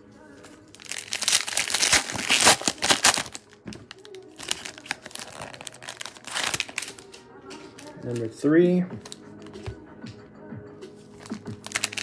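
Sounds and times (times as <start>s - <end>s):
foil wrappers crinkling: 0.7s - 7.2s, 11.2s - 12.0s.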